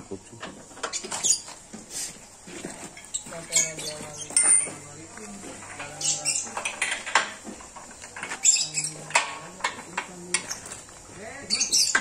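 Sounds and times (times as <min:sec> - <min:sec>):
hand tools clinking on steel: 0:02.9 - 0:12.0.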